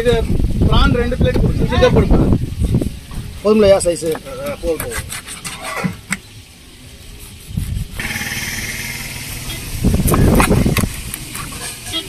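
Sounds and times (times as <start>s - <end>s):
motor vehicle engine running: 6.2s - 12.0s.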